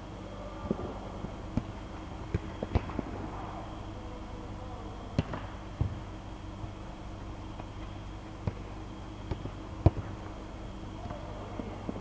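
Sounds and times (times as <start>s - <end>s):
steady hum in hall: 0.0s - 12.0s
football kick thuds: 1.5s - 3.2s, 5.2s - 6.1s, 8.4s - 8.6s, 9.2s - 10.2s.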